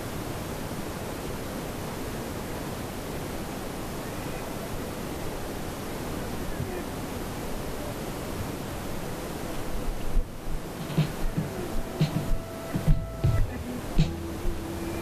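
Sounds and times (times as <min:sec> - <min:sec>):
wind rushing over microphone: 0:00.0 - 0:15.0
bumps and knocks: 0:10.8 - 0:14.6.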